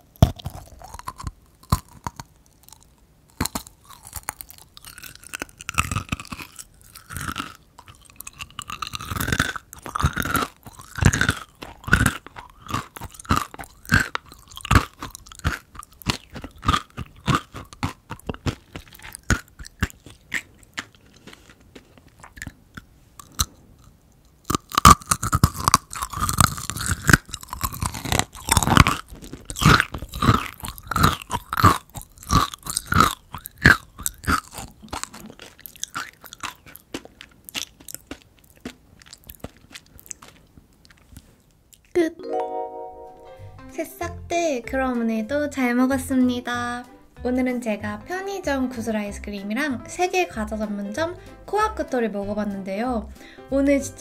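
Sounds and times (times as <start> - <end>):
candy crunching while chewing: 0.0 - 42.0.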